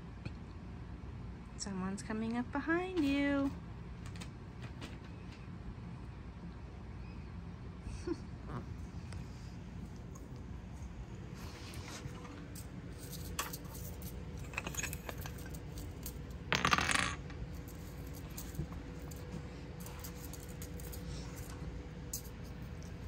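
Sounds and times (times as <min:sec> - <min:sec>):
kittens scuffling on tile floor: 0:04.0 - 0:05.5, 0:09.2 - 0:23.0.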